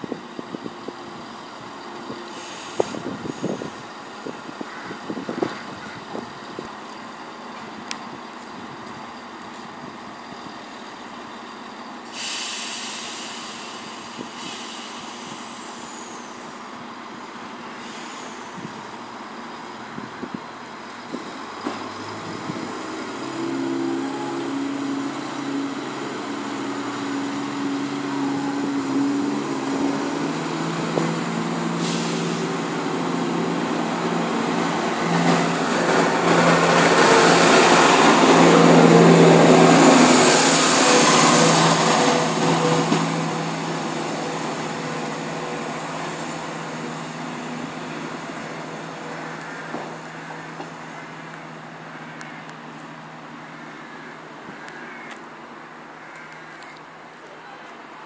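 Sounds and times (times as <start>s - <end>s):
diesel train engines droning: 0.0s - 58.0s
passing train rushing: 0.0s - 58.0s
air hiss: 2.2s - 3.9s, 12.0s - 16.6s, 17.7s - 18.8s, 31.6s - 32.8s.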